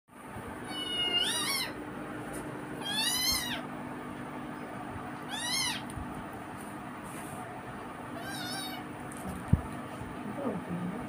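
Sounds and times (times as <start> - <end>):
cat meowing: 0.6 - 1.8, 2.8 - 3.7, 5.2 - 5.9, 8.2 - 8.9.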